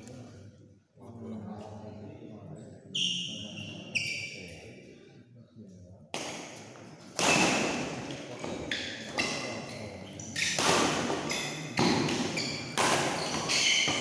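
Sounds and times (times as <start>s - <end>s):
rackets hitting shuttlecock: 7.2s - 9.3s, 10.4s - 14.0s.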